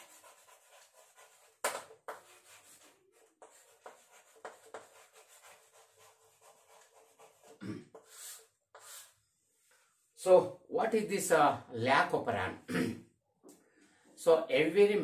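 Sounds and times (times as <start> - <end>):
chalk scratching on chalkboard: 0.0 - 9.5.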